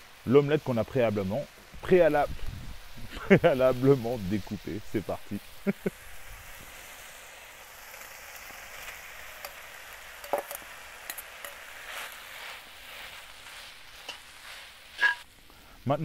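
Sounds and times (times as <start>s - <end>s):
food sizzling in a wok: 0.0s - 16.0s
metal spatula scraping: 8.7s - 15.3s.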